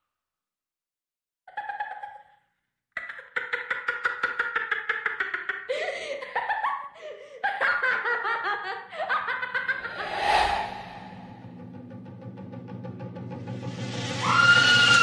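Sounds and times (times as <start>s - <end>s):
high-pitched laughter: 1.5s - 2.4s, 3.0s - 10.0s
rising whoosh: 9.8s - 11.6s.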